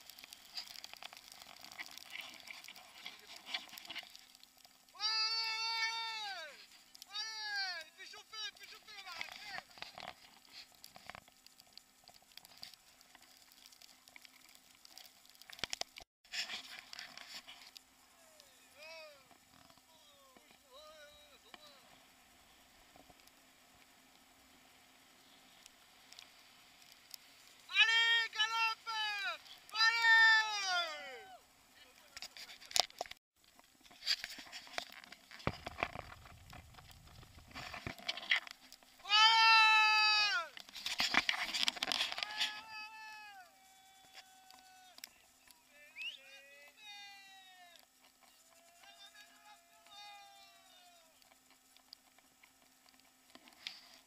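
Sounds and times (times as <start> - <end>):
camera handling rustle: 40.6 - 42.3.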